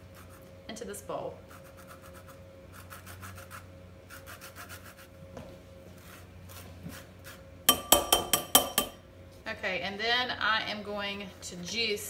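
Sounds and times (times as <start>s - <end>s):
grater scraping peel: 1.5s - 5.1s.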